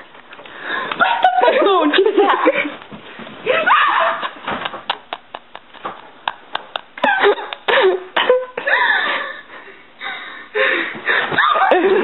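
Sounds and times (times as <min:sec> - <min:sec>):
girl shrieking with laughter: 0:03.5 - 0:04.4, 0:11.3 - 0:12.0.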